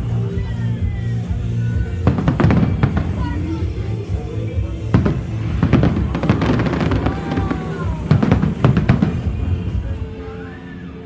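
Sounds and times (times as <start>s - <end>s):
music: 0.0s - 11.0s
fireworks bursting: 1.6s - 10.2s.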